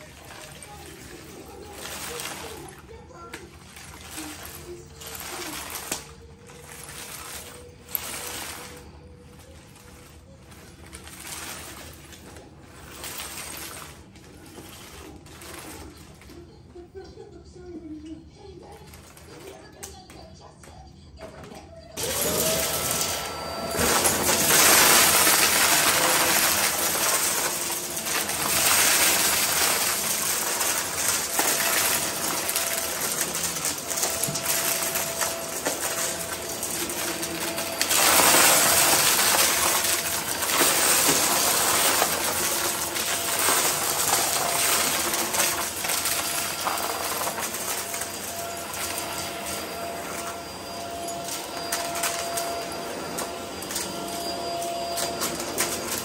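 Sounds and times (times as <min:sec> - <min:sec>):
vacuum cleaner motor hum: 0:00.0 - 0:16.5, 0:22.0 - 0:56.0
debris crackling through vacuum: 0:23.7 - 0:50.5.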